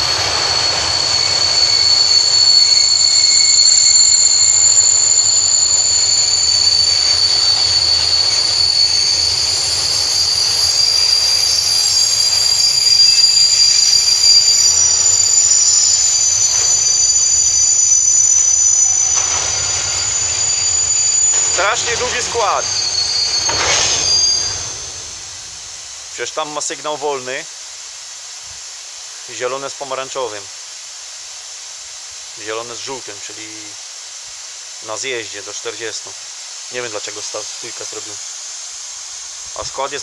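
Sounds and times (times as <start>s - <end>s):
freight train rolling past: 0.0s - 26.2s
train wheels squealing: 0.0s - 26.2s.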